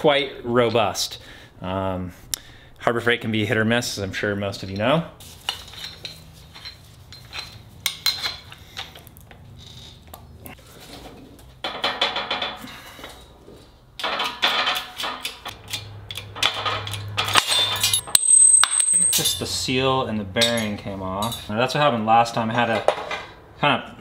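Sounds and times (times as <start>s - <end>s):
steel tools clinking and scraping: 4.6s - 10.0s, 14.0s - 19.6s, 20.4s - 21.6s.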